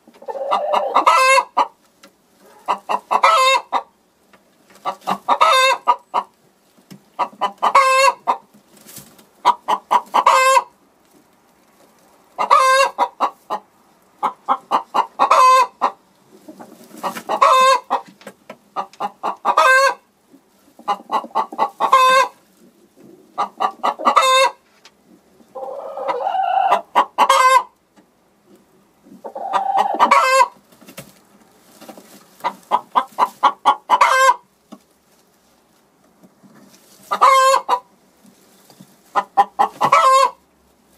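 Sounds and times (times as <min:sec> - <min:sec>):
hen clucking: 0:00.0 - 0:06.4, 0:07.1 - 0:10.9, 0:12.3 - 0:35.3, 0:36.5 - 0:40.5
harsh hen calls: 0:00.1 - 0:01.8, 0:02.4 - 0:03.9, 0:04.8 - 0:06.3, 0:07.2 - 0:08.4, 0:09.4 - 0:10.8, 0:12.4 - 0:18.1, 0:18.8 - 0:20.1, 0:20.8 - 0:22.4, 0:23.1 - 0:24.6, 0:25.5 - 0:27.8, 0:29.2 - 0:30.6, 0:32.4 - 0:34.5, 0:37.0 - 0:37.9, 0:39.1 - 0:40.4.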